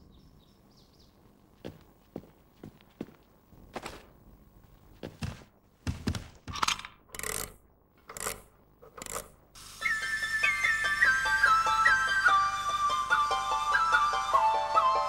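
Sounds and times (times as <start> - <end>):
clockwork toy clicks and scrapes: 6.6 - 9.4
high flute-like mechanical birdsong: 9.6 - 15.0.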